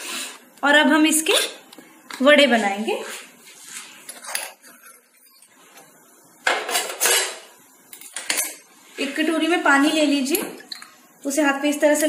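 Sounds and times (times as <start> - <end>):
dishes clattering: 6.4 - 8.6.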